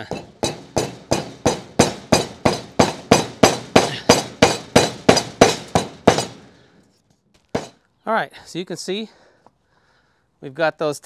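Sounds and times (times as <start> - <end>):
hammer striking bolts: 0.0 - 6.5, 7.5 - 7.8.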